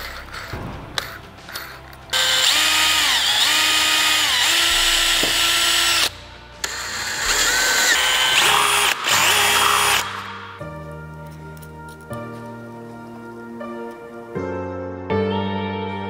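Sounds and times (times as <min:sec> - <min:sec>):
electric drill running: 0:02.1 - 0:10.6.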